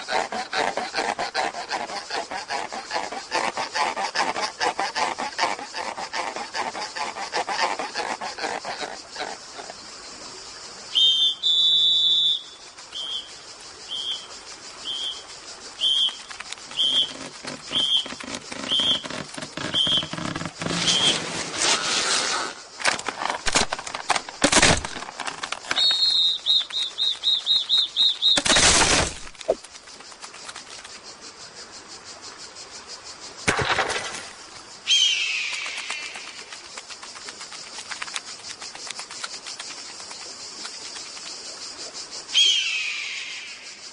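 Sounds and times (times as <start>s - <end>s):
high whistle-like tone: 10.9s - 13.3s, 25.8s - 28.4s.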